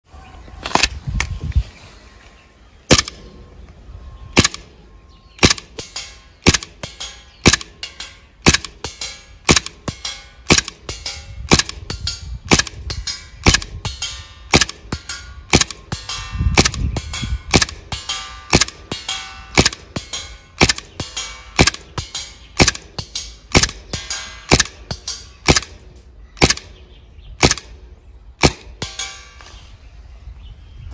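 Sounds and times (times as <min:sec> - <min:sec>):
airsoft pistol firing: 0:02.9 - 0:03.2, 0:04.4 - 0:04.7, 0:05.4 - 0:25.8, 0:26.4 - 0:26.8, 0:27.4 - 0:27.8, 0:28.4 - 0:29.2.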